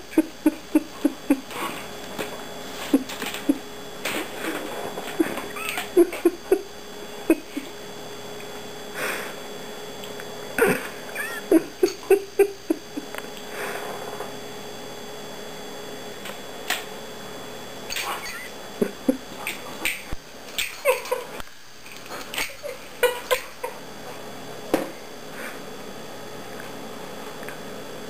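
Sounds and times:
dog whining and whimpering: 0:05.2 - 0:06.5, 0:18.1 - 0:18.5.

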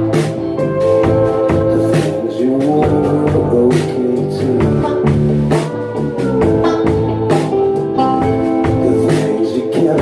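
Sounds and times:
drum beat: 0:00.0 - 0:10.0
electric guitar: 0:00.0 - 0:10.0
man singing into microphone: 0:01.4 - 0:06.1, 0:08.6 - 0:10.0.

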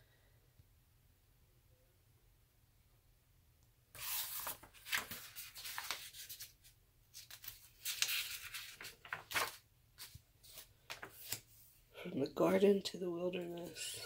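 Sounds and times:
paper pages rustling: 0:04.0 - 0:11.6.

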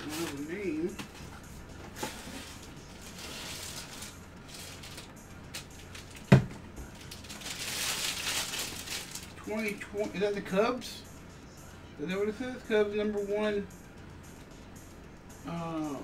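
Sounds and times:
plastic sleeve rustling: 0:02.0 - 0:05.1, 0:05.8 - 0:09.7.

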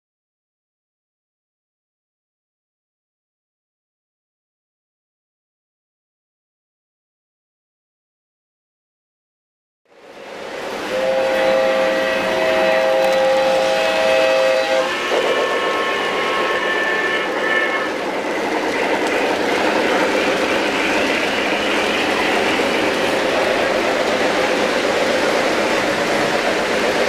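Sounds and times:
multi-note train signals: 0:09.9 - 0:27.0.

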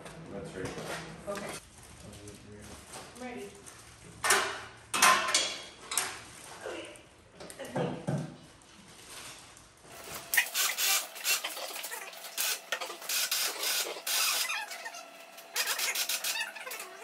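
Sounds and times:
electric hoist motor hum: 0:09.9 - 0:17.0.

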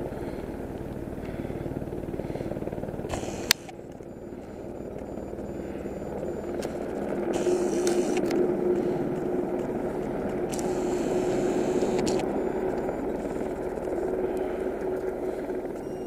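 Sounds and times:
engine droning: 0:00.0 - 0:16.0.

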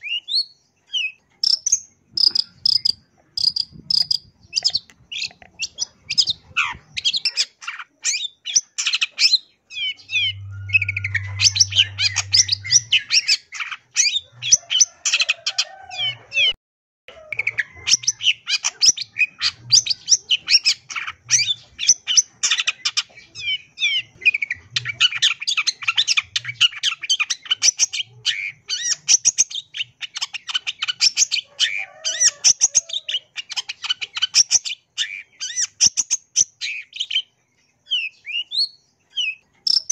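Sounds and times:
bird singing chirps and trills: 0:00.0 - 0:15.4.

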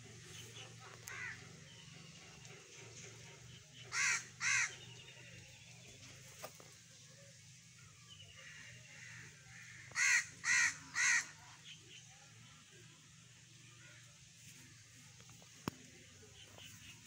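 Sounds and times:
bird cawing: 0:01.0 - 0:01.5, 0:03.9 - 0:04.8, 0:08.4 - 0:11.4.

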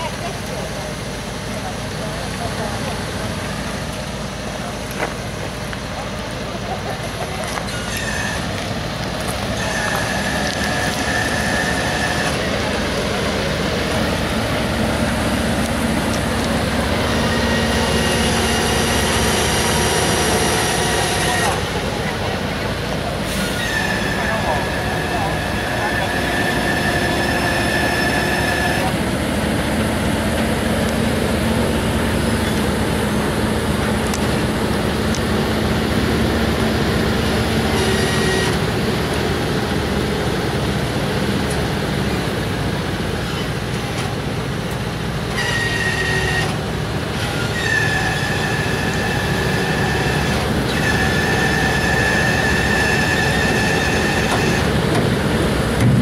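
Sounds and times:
heavy truck rumbling past: 0:00.0 - 0:56.0
high-pitched squeal: 0:07.5 - 0:29.1, 0:35.5 - 0:38.8, 0:45.2 - 0:54.8.

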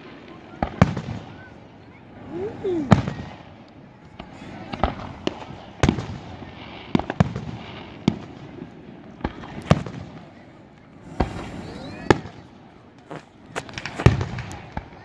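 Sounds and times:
fireworks shells bursting: 0:11.0 - 0:14.9.

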